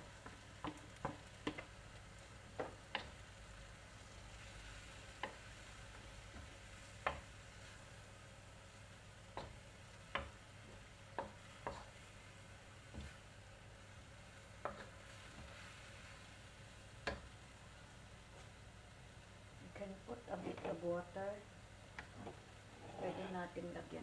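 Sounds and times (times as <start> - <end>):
faint sizzle: 0.0 - 24.0
wooden spatula clacking on wok: 0.2 - 1.7, 2.5 - 3.2, 9.3 - 11.9, 17.0 - 17.3.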